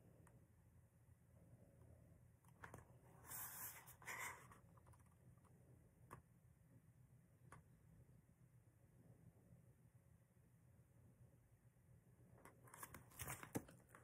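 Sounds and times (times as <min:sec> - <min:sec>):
paper rustling: 0:12.6 - 0:14.0.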